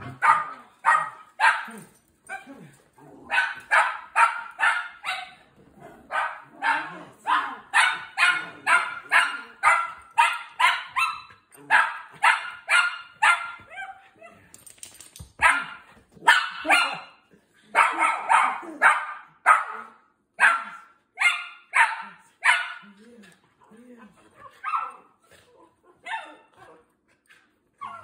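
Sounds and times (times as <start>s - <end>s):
puppy barking high-pitched: 0.0s - 2.5s, 3.3s - 5.4s, 6.1s - 14.1s, 15.4s - 17.2s, 17.8s - 22.8s, 24.5s - 25.1s, 26.0s - 26.5s.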